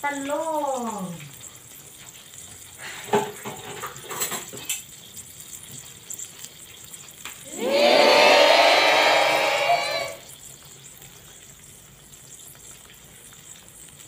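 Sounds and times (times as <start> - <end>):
oil hissing in frying pan: 0.0 - 14.0
oil pops and ticks: 0.2 - 7.4, 10.3 - 14.0.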